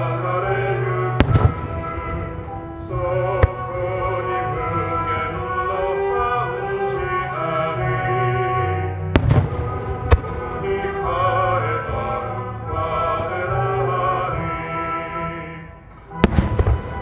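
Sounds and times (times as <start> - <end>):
music: 0.0 - 17.0
firework shells bursting: 1.2 - 3.9, 9.2 - 10.6.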